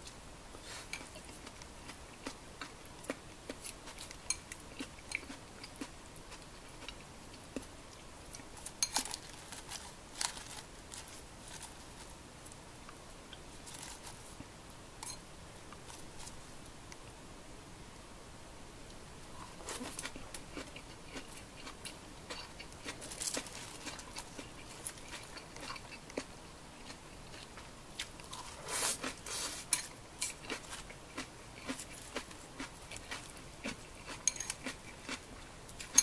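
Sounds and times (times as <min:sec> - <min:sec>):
crunchy chewing of raw vegetables: 0:00.0 - 0:12.2, 0:19.4 - 0:36.0.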